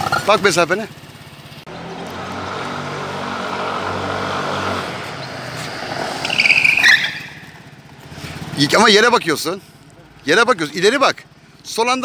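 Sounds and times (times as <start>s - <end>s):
scooter engine running steadily: 0.0s - 2.4s, 7.0s - 9.9s.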